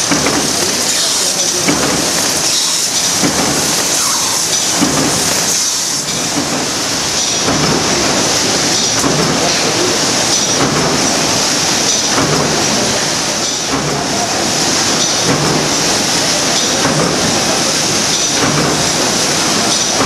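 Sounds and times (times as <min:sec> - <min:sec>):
repeating machine stroke: 0:00.0 - 0:06.5
binding machine clatter and hiss: 0:00.0 - 0:20.0.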